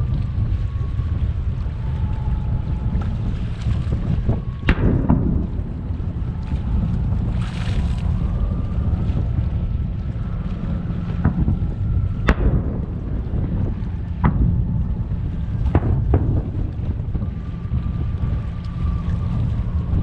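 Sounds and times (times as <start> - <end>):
steady low rumble: 0.0 - 20.0
distant firework bangs: 4.6 - 7.2, 11.1 - 17.2.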